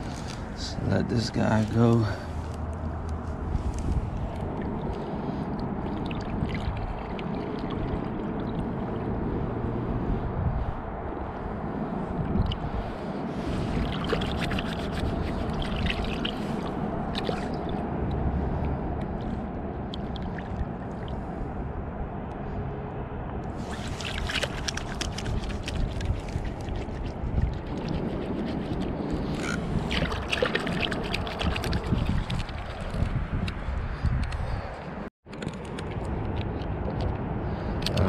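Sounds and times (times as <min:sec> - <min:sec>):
steady low rumble: 0:00.0 - 0:38.0
water splashing in shallows: 0:03.9 - 0:09.1, 0:13.4 - 0:17.8, 0:18.4 - 0:21.4, 0:23.6 - 0:33.7.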